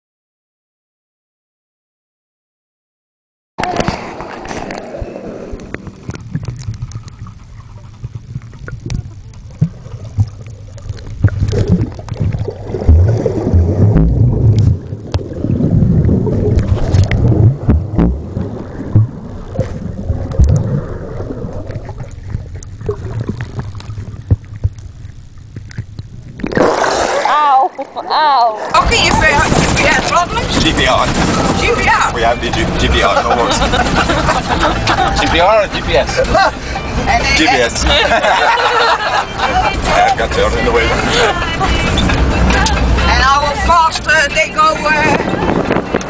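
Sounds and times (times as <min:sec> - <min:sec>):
underwater rumble of moving water: 0:03.6 - 0:46.0
underwater clicks and knocks: 0:05.5 - 0:15.4, 0:16.0 - 0:26.6.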